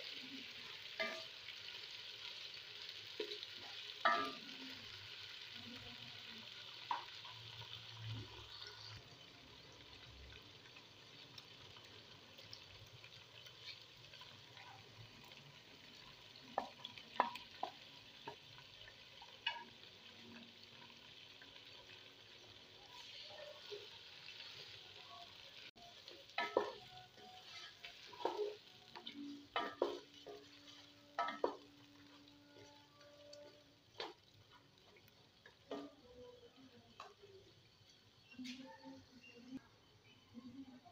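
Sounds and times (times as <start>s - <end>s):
chicken sizzling in oil: 0.0s - 40.9s.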